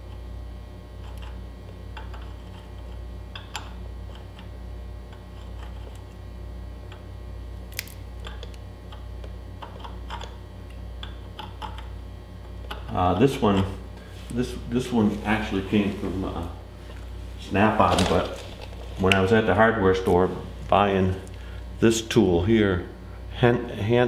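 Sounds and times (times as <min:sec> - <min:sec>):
steady low hum: 0:00.0 - 0:24.0
file scraping and clicking on threads: 0:01.0 - 0:04.5, 0:05.1 - 0:06.2.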